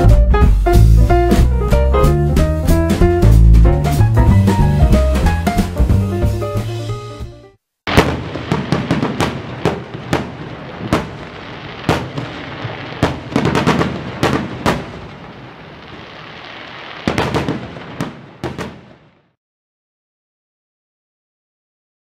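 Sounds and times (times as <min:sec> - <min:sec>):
fireworks bangs and pops: 0:02.4 - 0:06.0, 0:07.9 - 0:19.4
fireworks hissing crackle: 0:07.9 - 0:19.3.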